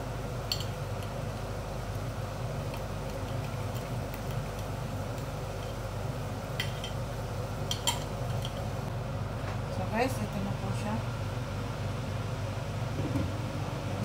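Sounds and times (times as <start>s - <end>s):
water boiling and bubbling: 0.0s - 9.2s.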